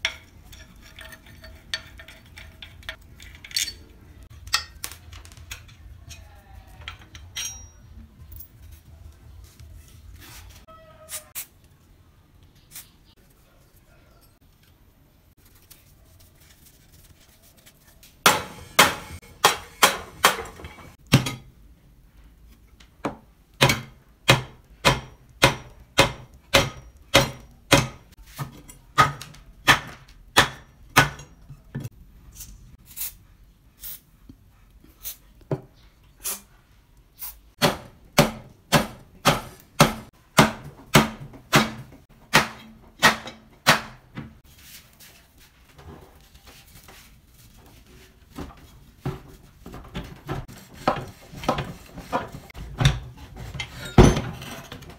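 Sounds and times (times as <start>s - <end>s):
hammer striking metal: 18.3s - 21.4s, 23.6s - 28.1s.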